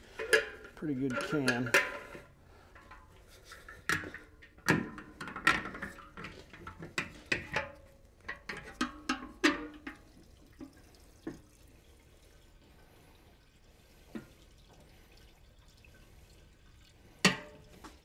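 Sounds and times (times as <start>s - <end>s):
metal clanks: 0.0s - 10.1s
gasoline trickling: 0.0s - 18.0s.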